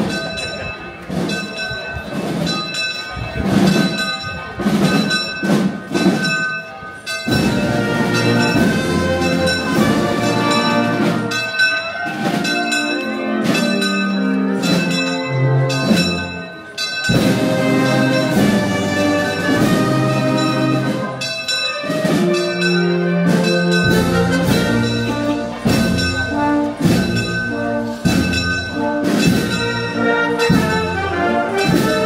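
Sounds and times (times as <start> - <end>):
church bells ringing: 0.0 - 32.0
brass band playing: 7.1 - 16.5, 17.1 - 32.0.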